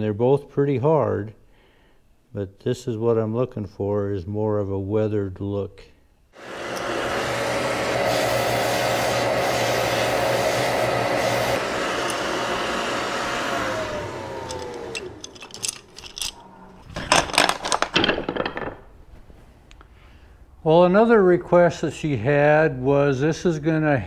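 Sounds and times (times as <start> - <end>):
sandblasting equipment blowing: 6.4 - 15.3
wooden spokes clattering: 14.4 - 18.9.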